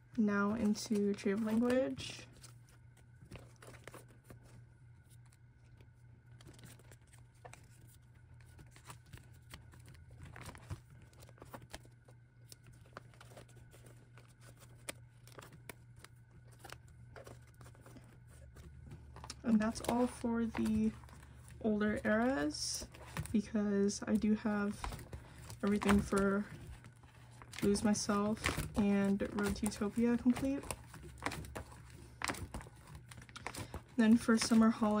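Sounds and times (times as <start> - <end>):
plastic sleeves crinkling: 0.2 - 35.0.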